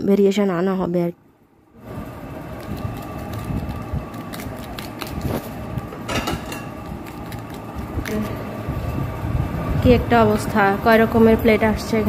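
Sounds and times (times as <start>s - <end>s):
background hum: 0.0s - 12.0s
salad rustling on a plate: 2.3s - 8.3s.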